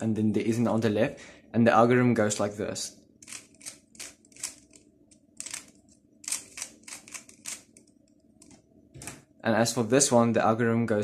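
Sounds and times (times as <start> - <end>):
puzzle cube turning clicks: 3.2 - 8.5.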